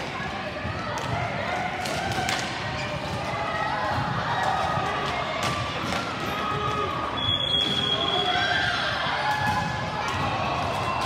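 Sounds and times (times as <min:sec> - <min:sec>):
hockey sticks and ball clacking: 0:00.9 - 0:03.3, 0:04.4 - 0:06.8.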